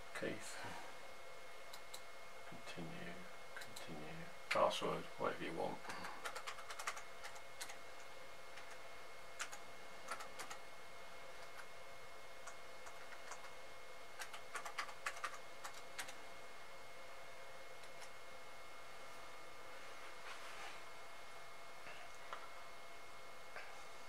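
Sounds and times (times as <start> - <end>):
keyboard typing: 5.9 - 8.8, 9.4 - 10.6, 12.4 - 13.5, 14.2 - 16.2.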